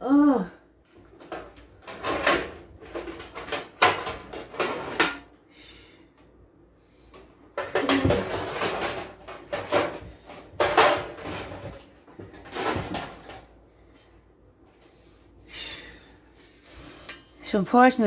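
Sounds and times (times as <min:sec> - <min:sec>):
kitchen items clattering: 0:00.9 - 0:05.4, 0:07.2 - 0:14.1.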